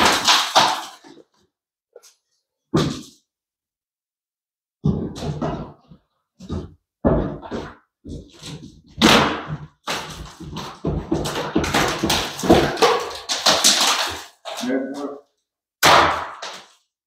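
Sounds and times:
ceiling boards torn down: 0.0s - 1.2s, 7.4s - 14.6s.

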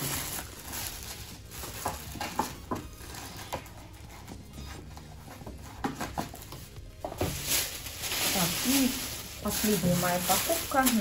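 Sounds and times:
food packaging crinkling: 0.0s - 3.8s, 6.3s - 11.0s
plastic bags rustling: 0.0s - 11.0s.

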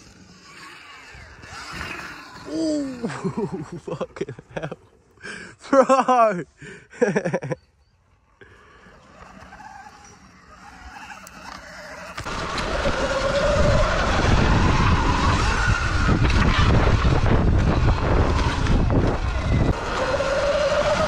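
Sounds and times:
electric motor whine: 0.0s - 3.5s, 8.1s - 21.0s
wind noise on camera: 12.2s - 21.0s.

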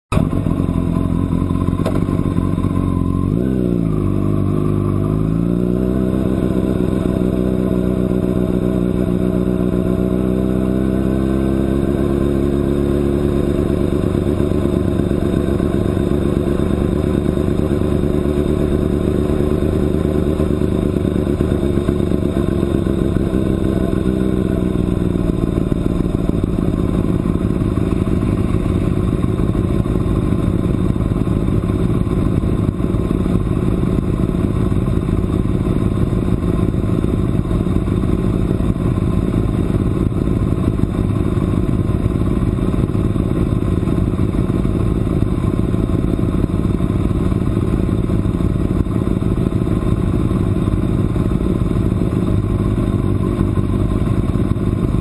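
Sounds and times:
motorcycle engine at low speed: 0.0s - 55.0s.

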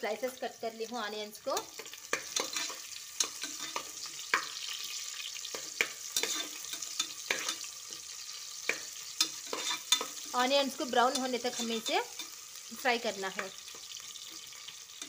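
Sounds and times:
onions sizzling in hot oil: 0.0s - 15.0s
metal spatula scraping pot: 1.5s - 12.4s.

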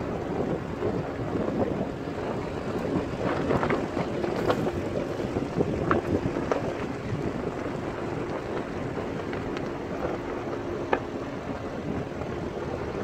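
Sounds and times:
vehicle rumbling on gravel road: 0.0s - 13.0s
wind buffeting microphone: 0.0s - 13.0s
small clicks and ticks: 2.7s - 11.1s.

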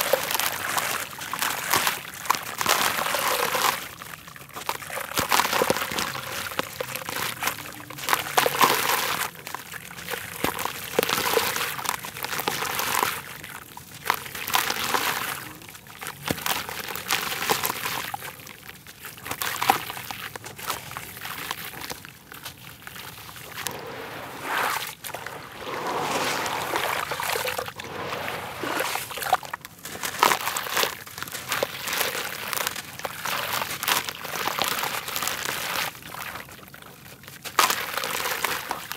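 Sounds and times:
crumbs splashing into water: 0.0s - 38.9s
wet dirt crunching: 18.8s - 34.0s.

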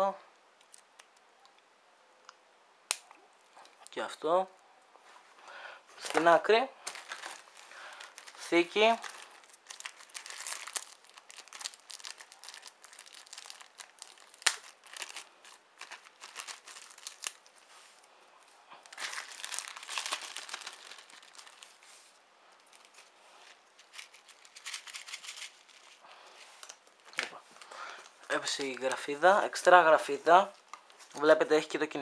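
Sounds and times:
plastic bag crinkling: 6.0s - 18.0s, 18.8s - 26.0s.

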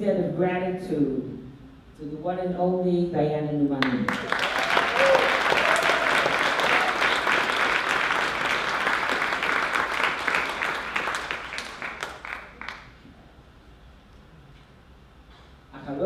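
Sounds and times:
audience applause: 4.1s - 12.9s.

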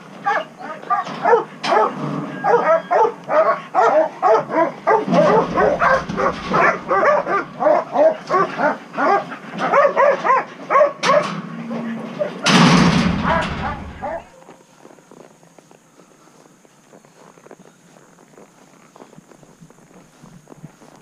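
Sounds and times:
dogs barking rapidly: 0.2s - 11.4s, 12.2s - 14.4s.

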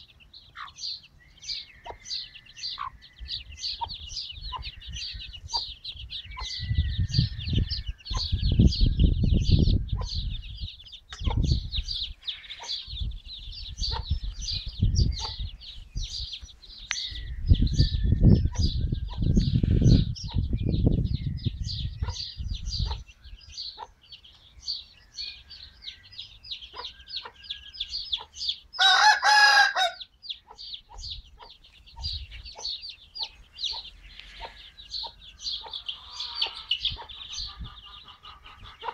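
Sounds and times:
wind rumbling on microphone: 2.9s - 23.8s, 30.9s - 38.9s
rooster call: 28.8s - 30.0s.

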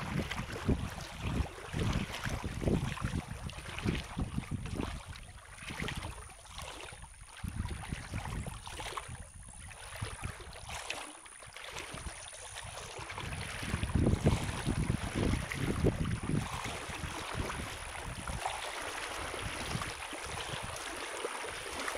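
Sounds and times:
wind buffeting microphone: 0.0s - 6.2s, 7.4s - 10.7s, 11.9s - 20.9s
river water rushing: 16.5s - 21.9s.

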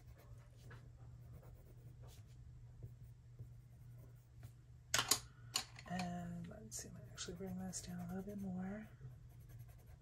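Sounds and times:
pencil scratching on paper: 0.0s - 4.3s, 6.8s - 10.0s
steady low hum: 0.0s - 10.0s.

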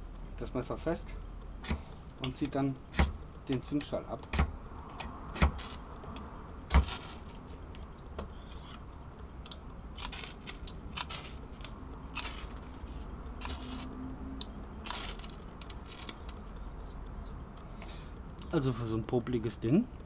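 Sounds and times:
rod scraping knife blade: 13.4s - 13.9s.

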